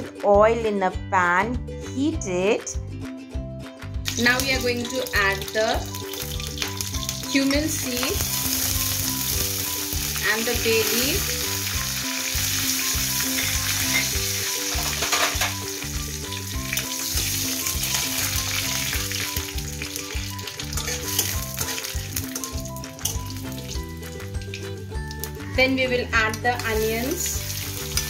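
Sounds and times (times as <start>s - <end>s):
soft background music: 0.0s - 28.0s
seeds sizzling in hot oil: 4.4s - 23.8s, 26.6s - 28.0s.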